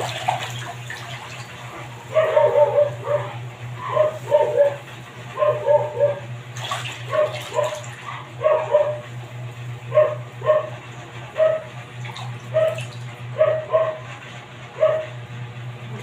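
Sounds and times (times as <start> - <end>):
steady low hum: 0.0 - 16.0
dog barking: 2.1 - 4.8, 5.4 - 6.2, 7.1 - 9.0, 9.9 - 10.8, 11.4 - 11.7, 12.5 - 14.1, 14.8 - 15.2.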